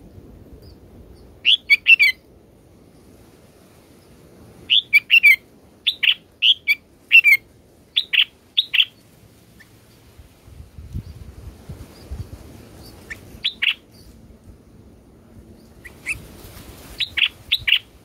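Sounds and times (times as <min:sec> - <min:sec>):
bird chirping: 0:01.2 - 0:02.2, 0:04.7 - 0:07.4, 0:08.0 - 0:09.0, 0:12.8 - 0:14.2.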